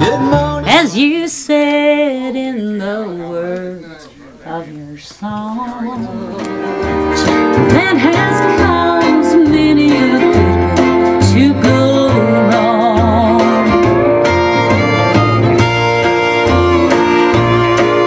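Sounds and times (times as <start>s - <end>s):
plucked acoustic guitar: 0.0s - 2.2s, 5.3s - 18.0s
person singing: 0.0s - 18.0s
stepping bass notes: 5.4s - 18.0s.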